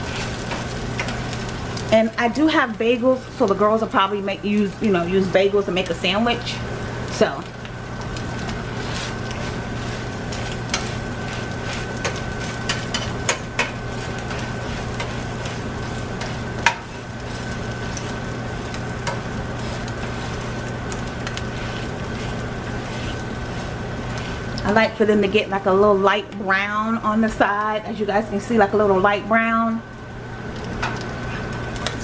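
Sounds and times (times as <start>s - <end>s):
eggs sizzling in oil: 0.0s - 32.0s
spatula scraping and tapping pan: 8.8s - 24.7s.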